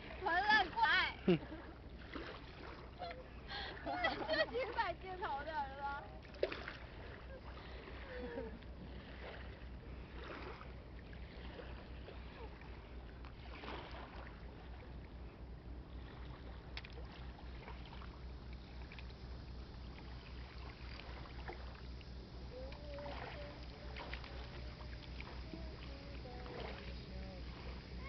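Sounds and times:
boat engine droning: 0.0s - 28.0s
thin wavering tone: 20.2s - 28.0s.

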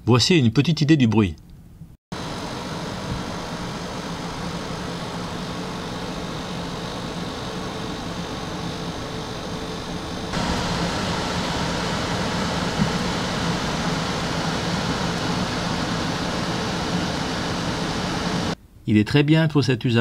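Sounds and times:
air conditioner fan running: 1.6s - 18.8s.

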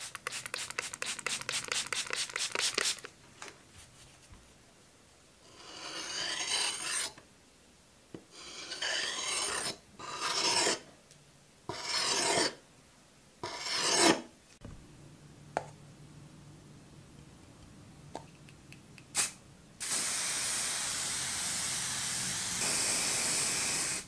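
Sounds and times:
blade scraping on sharpening stone: 5.5s - 7.2s, 8.4s - 10.8s, 11.7s - 12.6s, 13.4s - 14.2s.

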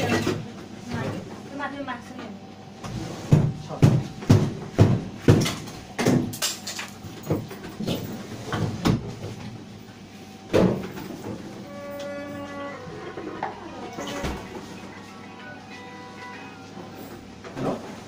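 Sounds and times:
mobile phone ringtone: 13.3s - 17.1s.

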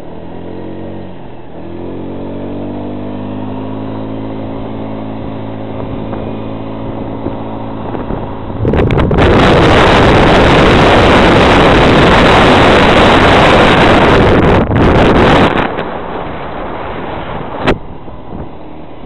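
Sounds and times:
engine hum: 0.0s - 19.0s
loud even rushing noise: 7.1s - 19.0s.

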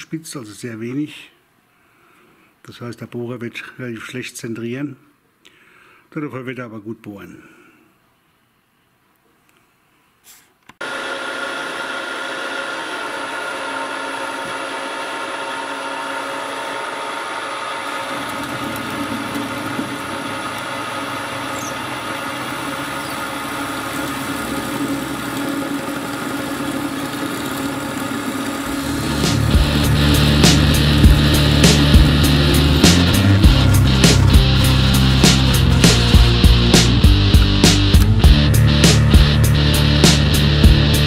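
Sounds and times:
drill cutting metal: 10.8s - 39.3s
drill motor humming: 10.8s - 41.0s.

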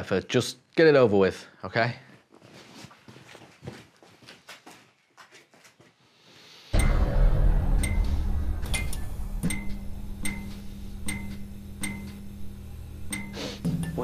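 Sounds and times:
clock-like ticking: 6.8s - 12.3s, 13.1s - 14.0s
deep low rumble drone: 6.8s - 13.1s.

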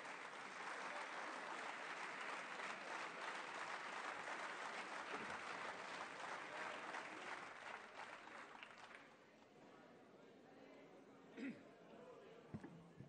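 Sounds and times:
applause: 0.0s - 9.4s.

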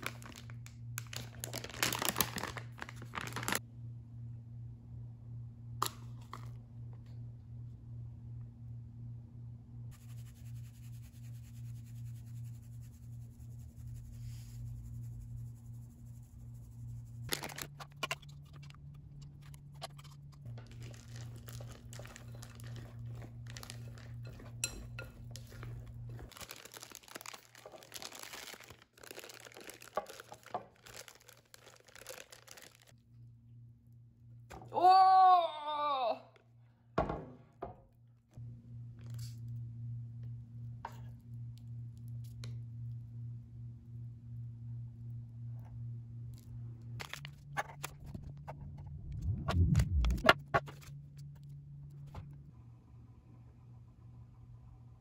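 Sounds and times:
paper crinkling: 0.0s - 3.6s, 17.3s - 32.9s
steady low hum: 0.0s - 26.5s, 36.4s - 55.0s
dishes and utensils clinking: 23.7s - 25.7s.

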